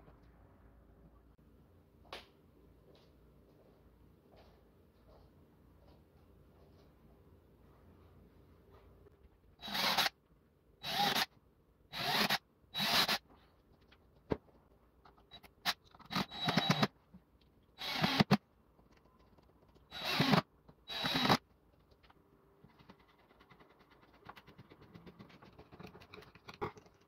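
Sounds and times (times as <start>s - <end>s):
cordless drill boring into wood: 9.6s - 10.1s, 10.8s - 11.3s, 11.9s - 13.2s, 16.1s - 16.9s, 17.8s - 18.4s, 19.9s - 21.4s.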